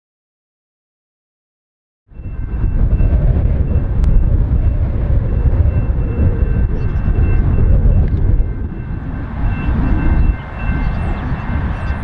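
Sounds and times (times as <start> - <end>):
locomotive engine rumble: 2.1 - 12.0.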